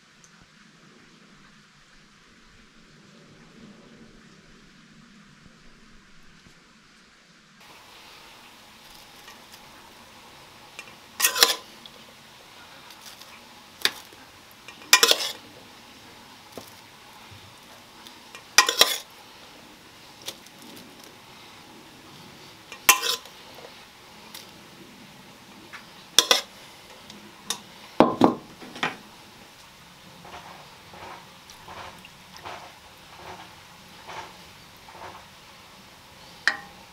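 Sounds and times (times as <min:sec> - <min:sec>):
metal spoon clinking on cookware: 0:10.8 - 0:11.7, 0:14.7 - 0:15.4, 0:18.3 - 0:19.1, 0:22.7 - 0:23.3, 0:26.2 - 0:26.5, 0:36.5 - 0:36.8.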